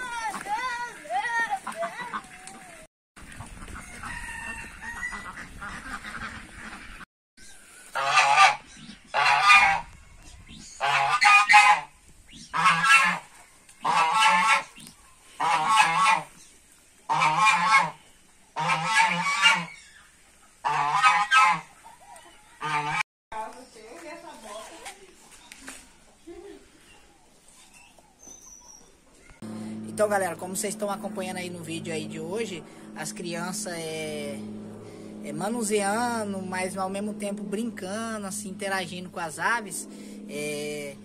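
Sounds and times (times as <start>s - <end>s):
goose honking: 0.0s - 7.0s, 7.9s - 9.9s, 10.7s - 16.5s, 17.1s - 23.0s, 29.5s - 40.6s.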